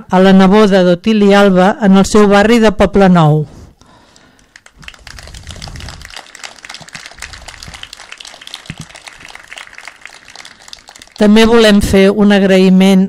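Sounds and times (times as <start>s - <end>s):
crowd applauding: 4.3s - 11.8s.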